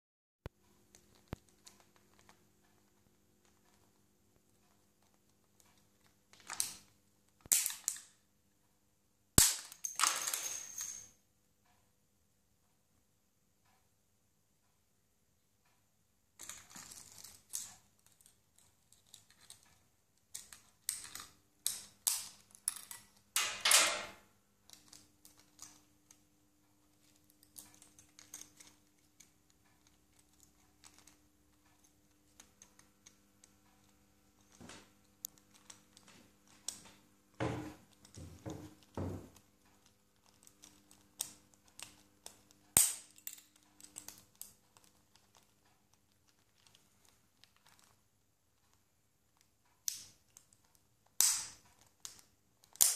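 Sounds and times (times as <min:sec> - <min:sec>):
parakeet chewing plastic pen: 0:00.8 - 0:08.1, 0:16.4 - 0:23.2, 0:37.8 - 0:48.0.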